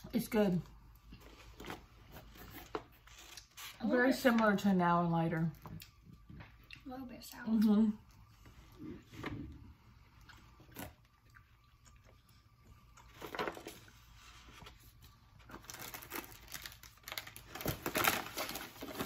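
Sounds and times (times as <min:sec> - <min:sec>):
plastic packaging crinkling: 0:14.7 - 0:19.0.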